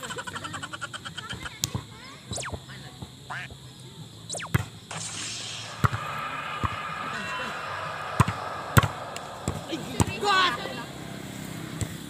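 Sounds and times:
voices: 0:00.0 - 0:12.0
short high falling calls: 0:02.3 - 0:03.6, 0:04.3 - 0:11.1.

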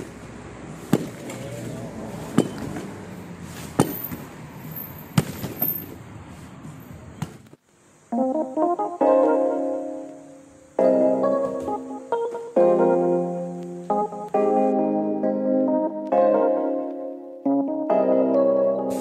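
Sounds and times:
piano music: 0:08.1 - 0:19.0.

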